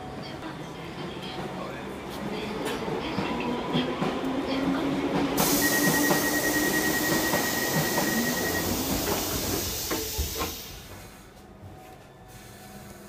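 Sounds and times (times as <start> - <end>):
train air hiss: 5.4 - 11.6, 12.2 - 13.0.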